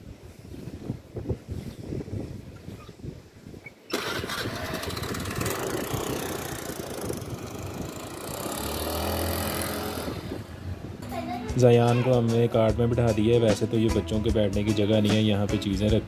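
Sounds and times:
motor scooter engine: 3.9s - 11.0s.

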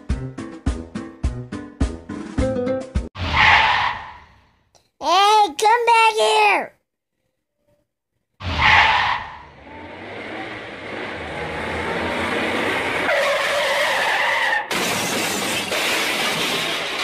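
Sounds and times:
car tires screeching: 3.2s - 4.2s, 8.4s - 14.7s.

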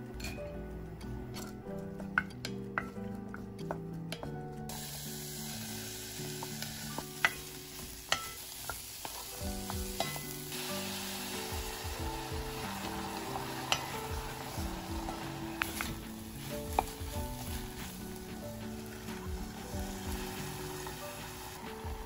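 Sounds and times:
food sizzling in a pan: 4.7s - 22.0s
utensil striking pan: 6.2s - 22.0s.

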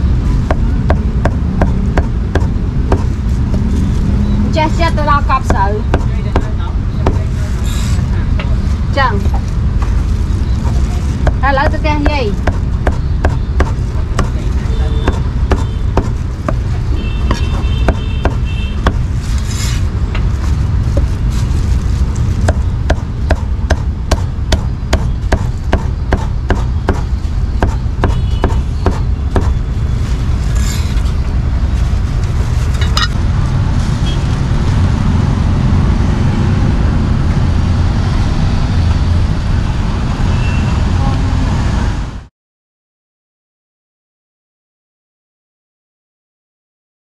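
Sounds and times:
street traffic rumbling: 0.0s - 42.3s
cleaver chopping on wooden block: 0.5s - 3.1s, 12.0s - 14.4s, 15.0s - 16.6s, 17.3s - 19.0s, 22.4s - 29.6s.

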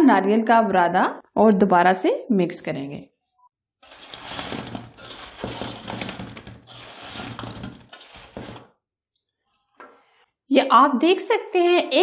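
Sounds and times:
spatula stirring sugared pieces in steel: 3.8s - 8.7s.

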